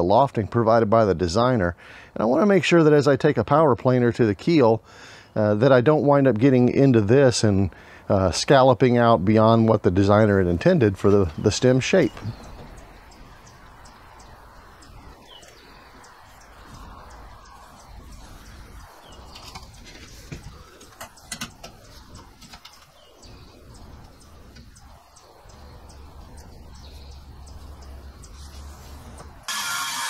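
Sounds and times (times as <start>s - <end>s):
faint bird chirps: 11.3s - 29.3s.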